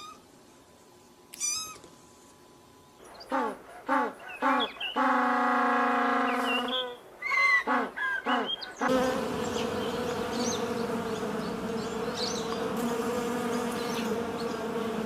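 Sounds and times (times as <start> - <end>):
honeybees buzzing: 8.8 - 15.0.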